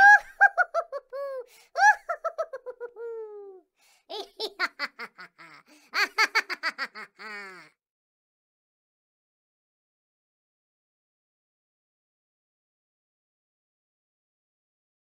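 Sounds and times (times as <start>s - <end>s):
high-pitched laughter: 0.0s - 7.8s.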